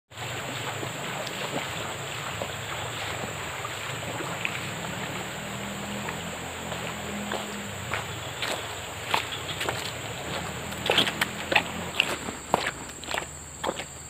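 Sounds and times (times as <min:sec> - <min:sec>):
high-pitched insect drone: 0:02.3 - 0:13.7.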